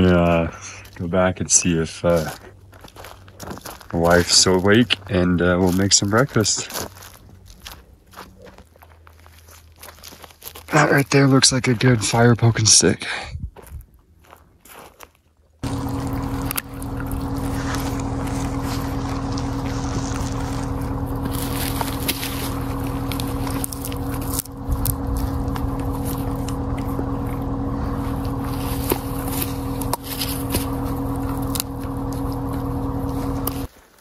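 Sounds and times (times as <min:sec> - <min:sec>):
power saw motor running: 0:15.6 - 0:33.7.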